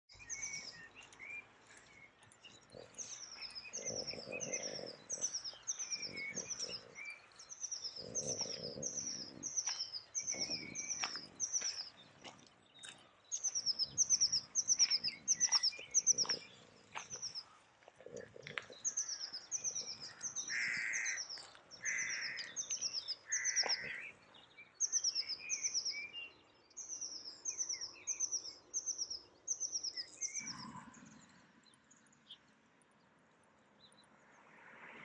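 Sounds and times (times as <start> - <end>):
low bird chirps: 0.1 - 24.2.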